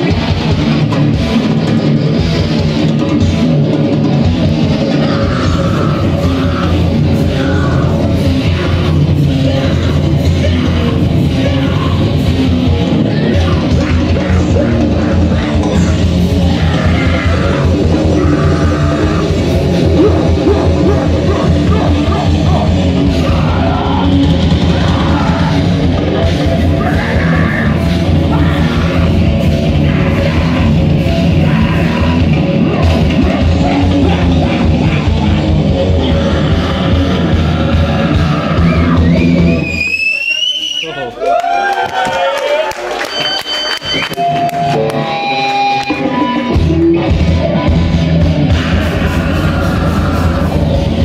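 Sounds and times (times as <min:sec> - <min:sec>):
heavy band playing live: 0:00.0 - 0:40.2, 0:42.9 - 0:51.0
vocalist screaming: 0:13.0 - 0:42.7, 0:48.4 - 0:51.0.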